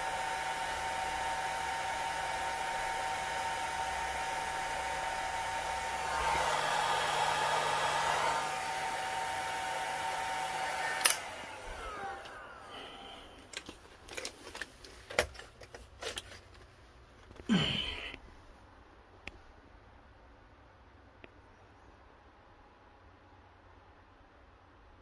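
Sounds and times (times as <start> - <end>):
fan winding down whine: 0.0 - 13.7
hot-air blower hissing: 0.0 - 13.8
switch click: 11.0 - 11.3.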